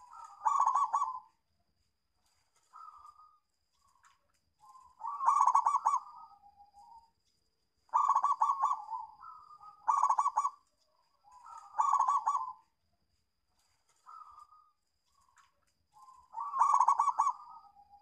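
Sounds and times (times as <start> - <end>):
dove cooing: 0.0 - 1.4, 4.6 - 7.0, 7.9 - 10.6, 11.2 - 12.7, 16.0 - 18.0.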